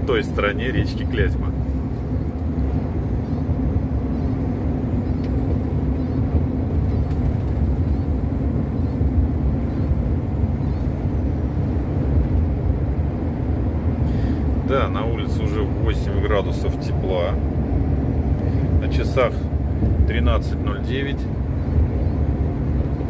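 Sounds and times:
faint hum: 0.0s - 23.0s
truck engine rumble: 0.0s - 23.0s.

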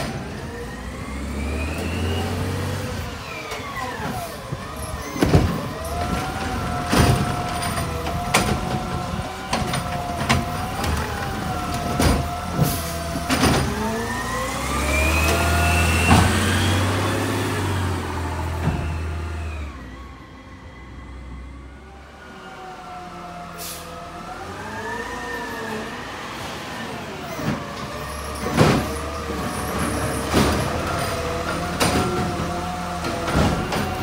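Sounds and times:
carts and lift arm clanking: 0.0s - 19.7s, 27.2s - 34.0s
truck engine revving: 0.0s - 20.3s, 22.7s - 34.0s
hydraulics whining: 0.0s - 34.0s.

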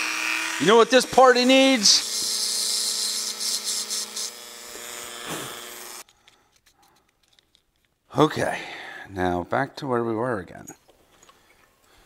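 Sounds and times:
rotary tool running: 0.0s - 6.0s
grinding hiss: 0.5s - 6.0s.

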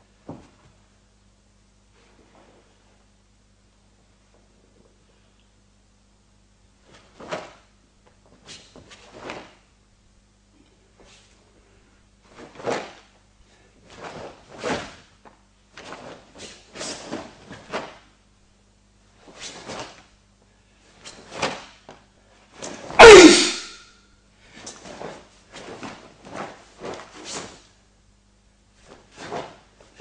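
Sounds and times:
bare feet striking and sliding on mat: 0.2s - 0.8s
short shout falling in pitch: 23.0s - 23.9s.

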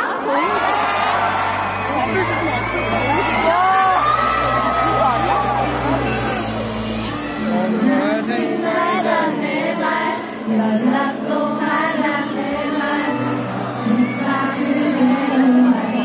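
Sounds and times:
women singing: 7.4s - 16.0s.

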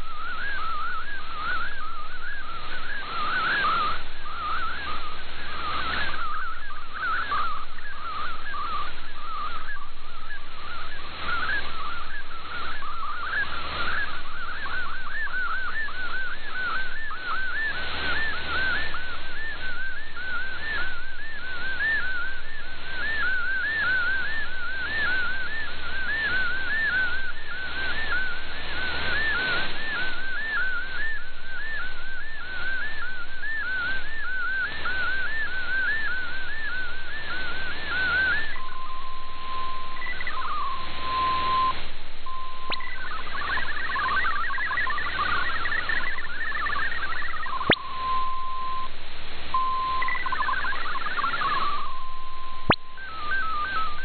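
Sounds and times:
shortwave static hiss: 0.0s - 54.0s
warbling digital tone: 37.4s - 49.0s, 49.6s - 54.0s.

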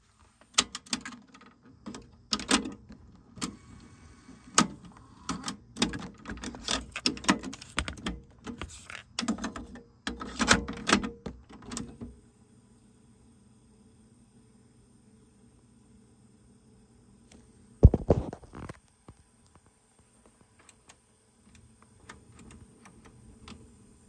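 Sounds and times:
cassette deck plastic clicks: 0.4s - 3.9s, 4.5s - 12.1s.

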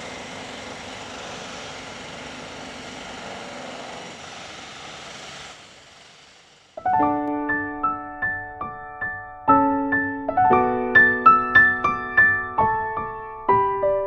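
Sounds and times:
outdoor rumble and hiss: 0.0s - 6.9s.

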